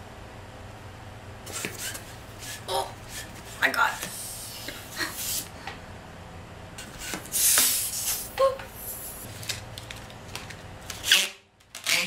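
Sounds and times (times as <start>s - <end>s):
balloon pump air hiss: 4.0s - 5.5s, 6.9s - 9.3s
balloon squeak: 11.0s - 12.0s.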